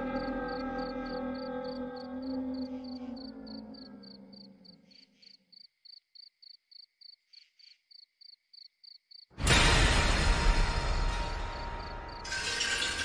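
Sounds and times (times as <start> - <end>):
cricket chirping: 0.1 - 9.3.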